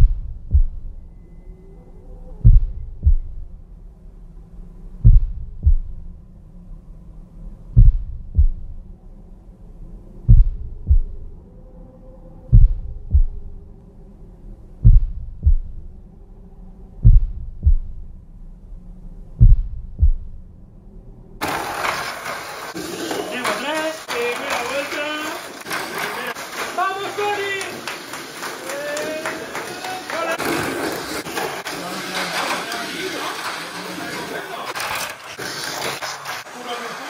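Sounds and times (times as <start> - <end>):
heartbeat thumps: 0.0 - 1.0, 2.4 - 3.6, 5.0 - 6.1, 7.8 - 8.8, 10.2 - 11.3, 12.5 - 13.6, 14.8 - 15.9, 17.0 - 18.2, 19.4 - 20.5
faint low drone: 0.0 - 21.4.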